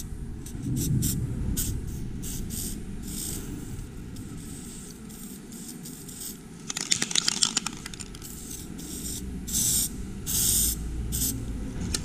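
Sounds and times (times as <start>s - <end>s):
aerosol spray can hissing bursts: 0.0s - 11.4s
sharp rattling clicks: 6.7s - 8.3s.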